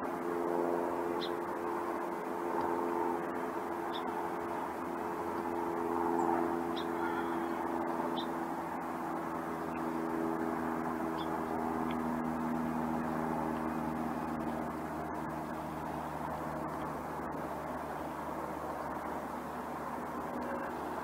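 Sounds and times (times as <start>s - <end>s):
engine humming: 0.0s - 21.0s.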